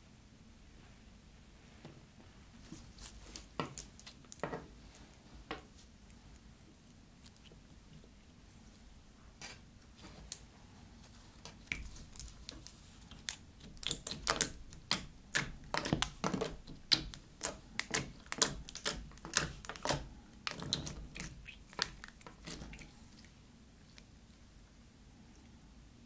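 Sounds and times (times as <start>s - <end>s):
slime clicking and popping: 11.4s - 22.9s.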